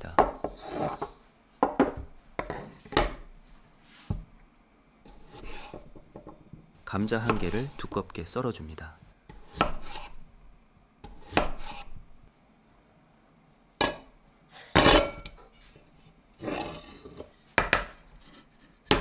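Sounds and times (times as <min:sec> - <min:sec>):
knife cutting potato on board: 0:05.1 - 0:06.0, 0:07.0 - 0:08.0, 0:09.3 - 0:10.2, 0:11.0 - 0:12.0.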